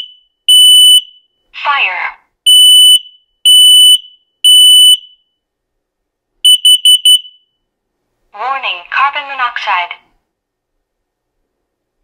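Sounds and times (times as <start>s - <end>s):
smoke alarm beeping: 0.0s - 1.4s, 2.5s - 5.4s, 6.4s - 7.7s
quick alarm beeps: 6.5s - 7.6s.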